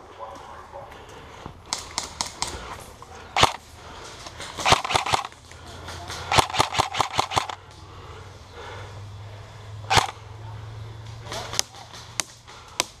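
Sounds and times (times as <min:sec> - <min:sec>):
airsoft guns firing: 0:01.7 - 0:02.7, 0:03.4 - 0:03.6, 0:04.4 - 0:07.6, 0:09.9 - 0:10.2.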